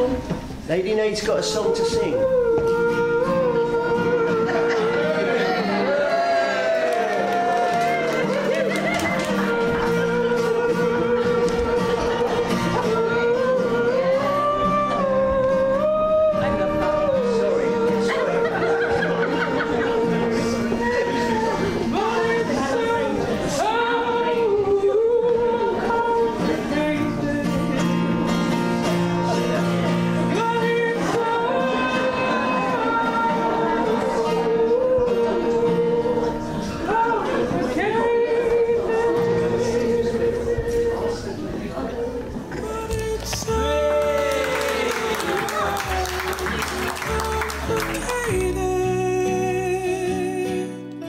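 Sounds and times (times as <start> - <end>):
acoustic guitar: 0.0 - 51.0
woman singing long notes: 7.2 - 18.5
woman singing: 7.6 - 27.8, 30.3 - 50.8.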